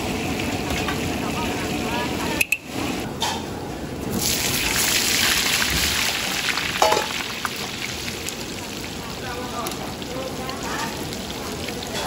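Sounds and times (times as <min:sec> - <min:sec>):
oil sizzling in a wok: 0:04.1 - 0:12.0.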